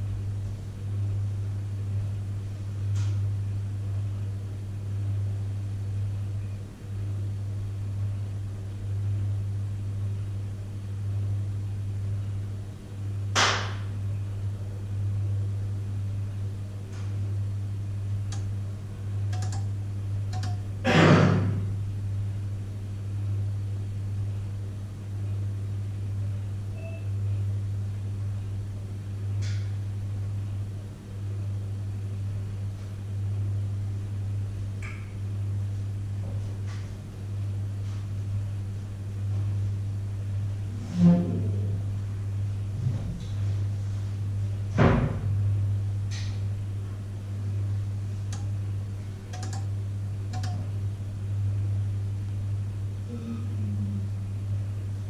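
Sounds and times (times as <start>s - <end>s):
microwave oven humming: 0.0s - 55.0s
thuds inside microwave: 44.8s - 45.4s.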